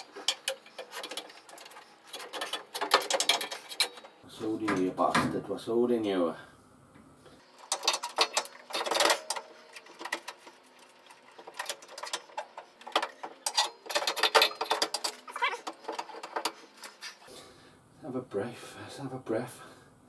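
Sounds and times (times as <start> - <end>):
metallic clicking and rattling: 0.0 - 4.9, 7.5 - 17.2.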